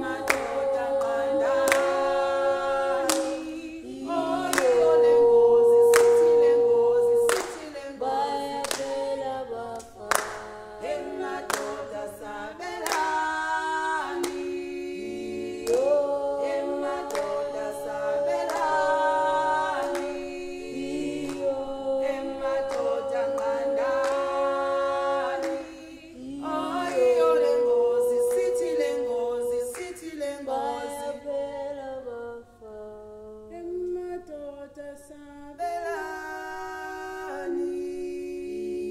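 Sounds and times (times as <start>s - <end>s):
group singing a cappella: 0.0s - 38.9s
hand claps: 0.2s - 2.2s, 3.0s - 3.6s, 4.4s - 4.9s, 5.9s - 6.5s, 7.2s - 7.8s, 8.6s - 9.0s, 9.8s - 10.6s, 11.4s - 12.0s, 12.7s - 13.5s, 14.1s - 14.6s, 15.4s - 16.0s, 16.9s - 17.7s, 18.4s - 18.9s, 19.6s - 20.5s, 21.2s - 21.5s, 22.6s - 25.9s, 28.1s - 28.8s, 29.7s - 30.1s.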